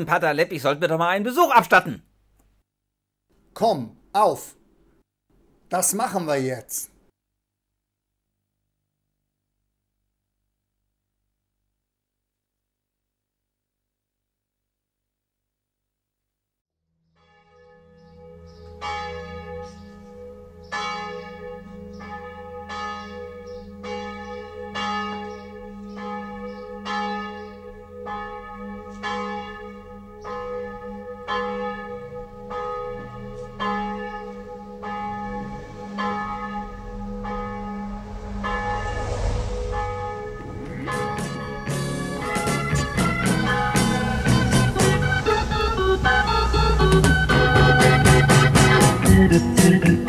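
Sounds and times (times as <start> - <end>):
church bells pealing: 17.4 - 39.3, 40.1 - 49.0
rush of noise: 36.7 - 42.4.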